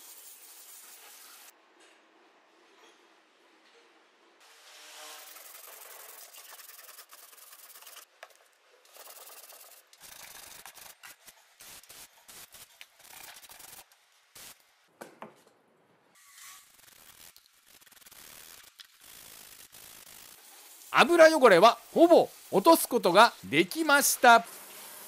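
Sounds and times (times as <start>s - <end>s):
brush scrubbing metal: 5.0s - 8.1s, 8.9s - 13.8s.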